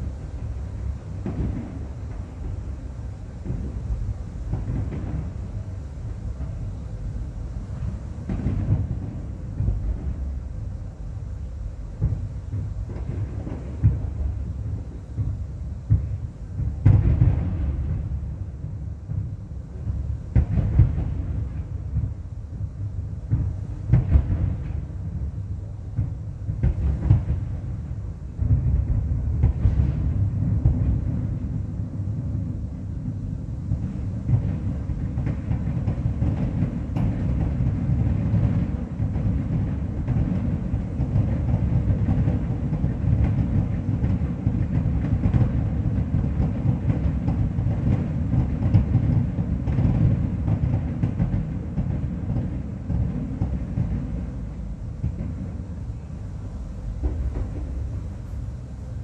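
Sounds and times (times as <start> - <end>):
fireworks bangs: 1.2 - 2.6, 3.4 - 5.4, 8.3 - 10.4, 15.9 - 18.4, 23.3 - 25.2, 26.0 - 27.6, 28.4 - 31.4, 33.8 - 54.3, 57.0 - 58.4.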